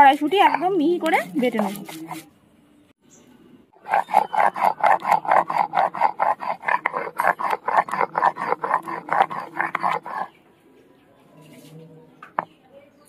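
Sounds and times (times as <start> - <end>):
stone roller grinding on stone: 0.0 - 2.3, 3.8 - 10.3.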